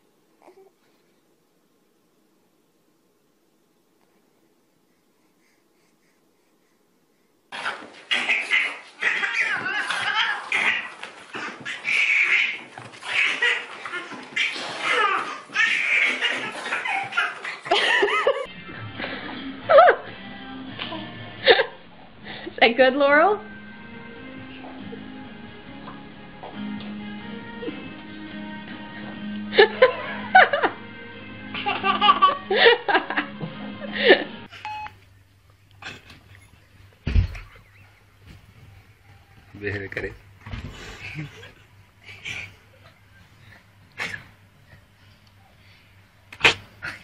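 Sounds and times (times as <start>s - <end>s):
baby laughing: 7.7s - 18.5s, 31.5s - 32.5s
hearty laughter: 16.2s - 20.0s, 40.8s - 44.3s
background music: 18.5s - 34.5s.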